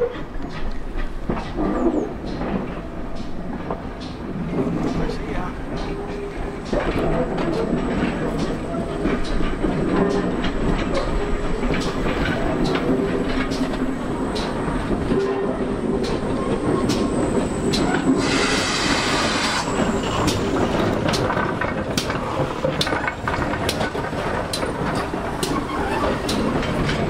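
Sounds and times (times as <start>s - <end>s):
train rumbling past: 0.0s - 27.0s
wheels clicking over rail joints: 0.0s - 27.0s
locomotive steam hiss: 16.1s - 20.9s.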